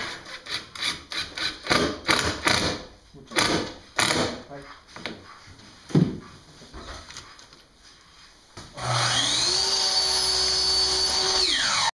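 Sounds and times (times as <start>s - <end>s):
power tool electric motor: 8.8s - 11.9s.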